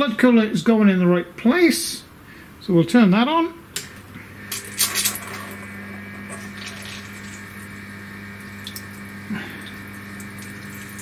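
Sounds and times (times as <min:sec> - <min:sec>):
coolant pump humming: 0:04.1 - 0:11.0
coolant splashing: 0:04.6 - 0:11.0.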